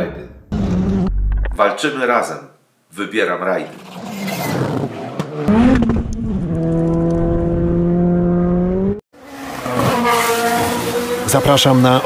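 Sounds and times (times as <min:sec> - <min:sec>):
road noise: 0:03.8 - 0:12.0
rally car engine at high revs: 0:04.2 - 0:12.0.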